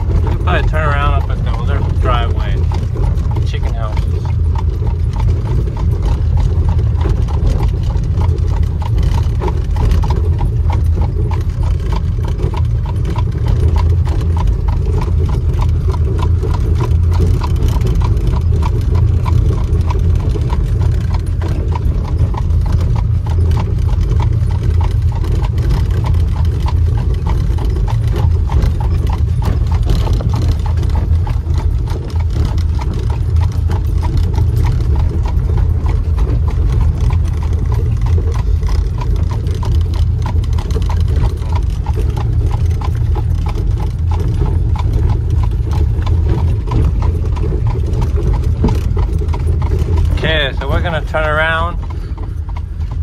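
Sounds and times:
buggy wheels rumbling: 0:00.0 - 0:53.0
horse hooves clip-clopping on road: 0:00.0 - 0:53.0.

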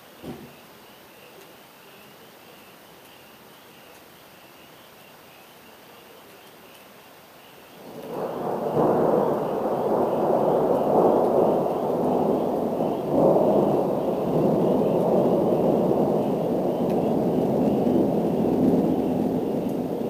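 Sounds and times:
thunder rumbling: 0:07.8 - 0:20.0.

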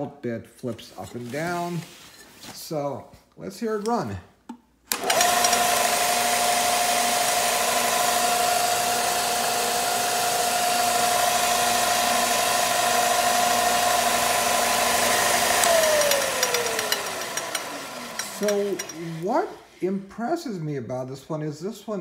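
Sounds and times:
sander motor whining: 0:04.9 - 0:19.6
motor coasting down: 0:05.0 - 0:19.3.

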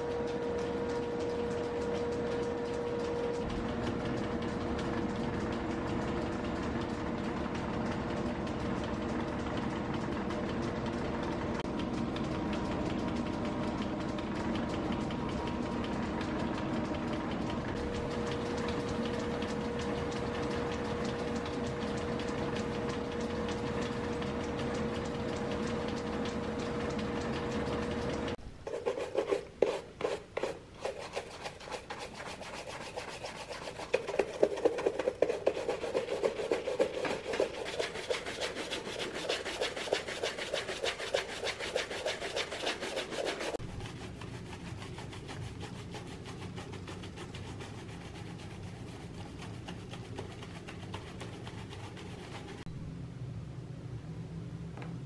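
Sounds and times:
spinning finishing wheel humming: 0:00.0 - 0:52.7
brush rubbing leather: 0:28.7 - 0:52.7.

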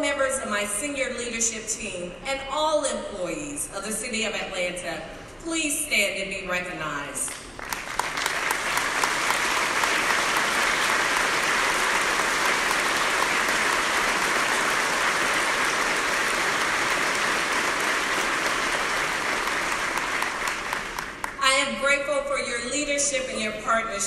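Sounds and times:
large audience applauding: 0:07.4 - 0:21.4.

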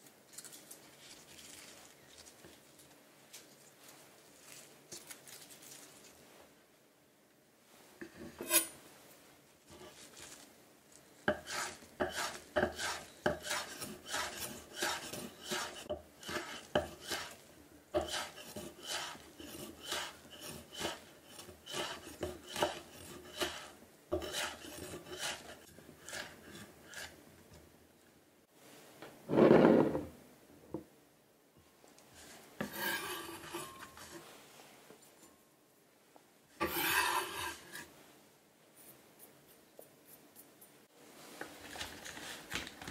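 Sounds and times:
knife slicing on wooden board: 0:18.0 - 0:25.5.

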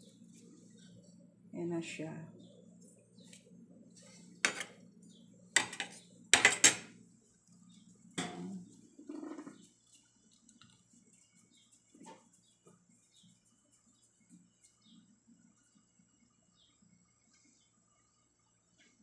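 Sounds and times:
cookware clattering and clinking: 0:04.4 - 0:04.8, 0:05.6 - 0:06.9.

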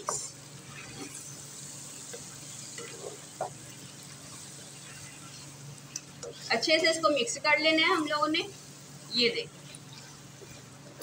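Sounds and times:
spatula scraping a pan: 0:00.0 - 0:07.0, 0:09.5 - 0:11.0
food sizzling in a pan: 0:00.0 - 0:11.0.

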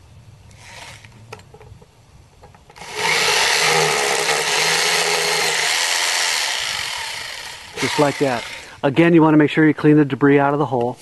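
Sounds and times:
hammer drill boring into concrete: 0:02.8 - 0:08.8.

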